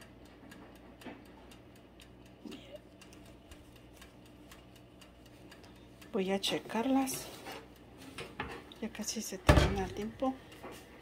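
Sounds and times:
dial timer ticking: 0.0 - 8.0
oven humming: 0.0 - 11.0.

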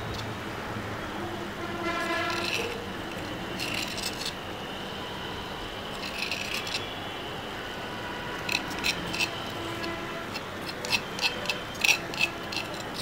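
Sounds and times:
metal spoon scraping stone mortar: 1.9 - 4.4, 5.9 - 6.9, 8.3 - 13.0.

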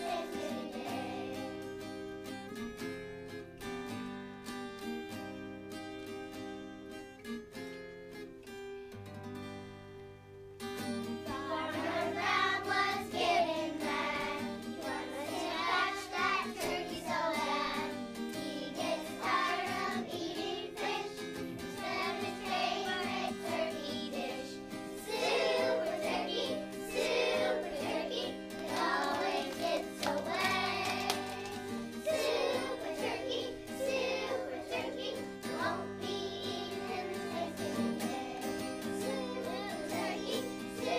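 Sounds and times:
children singing: 0.0 - 1.6, 11.3 - 40.9.

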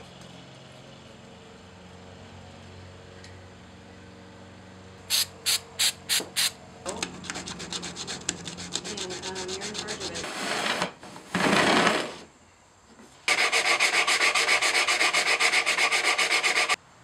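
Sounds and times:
sandpaper scraping wood: 7.1 - 10.8, 13.3 - 16.8.

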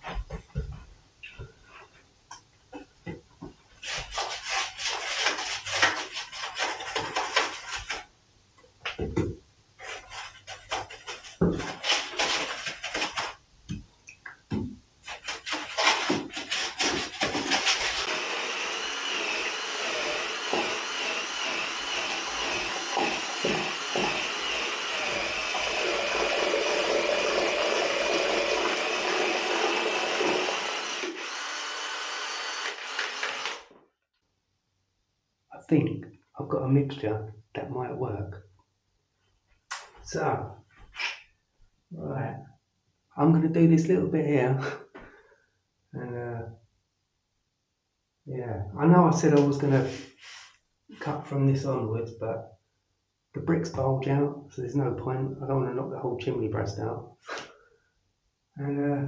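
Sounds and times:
plaster stirred and scraped in bucket: 2.8 - 8.1, 8.9 - 13.4, 14.5 - 18.2, 49.6 - 51.1.

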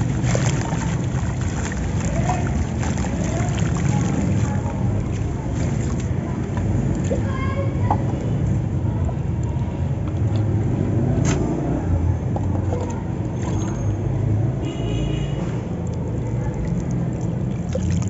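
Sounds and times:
block swirled in water splashing: 0.0 - 7.3, 15.9 - 18.0.

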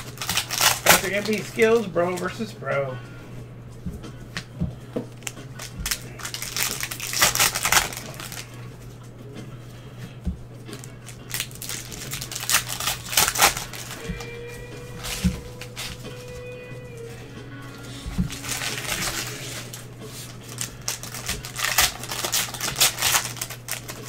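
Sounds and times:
wrappers crinkling and rustling: 0.0 - 2.4, 5.1 - 8.8, 10.7 - 17.1, 17.8 - 24.0.

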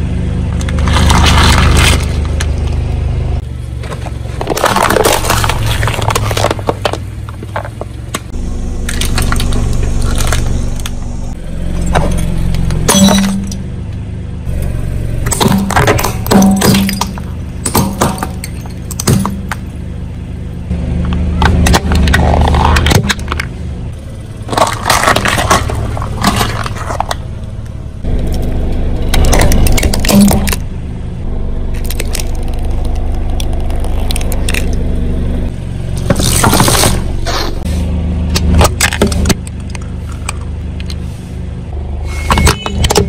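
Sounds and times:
car engine humming: 0.0 - 43.0
tyre crushing plastic and glass: 0.6 - 2.5, 3.8 - 7.9, 8.8 - 11.0, 11.8 - 13.6, 15.3 - 19.7, 24.4 - 27.2, 29.1 - 30.6, 36.0 - 37.6.

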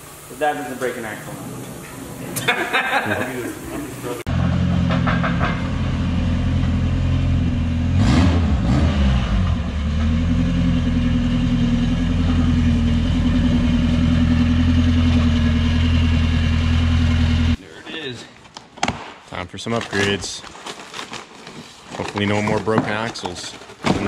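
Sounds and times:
car engine idling: 9.3 - 17.6.

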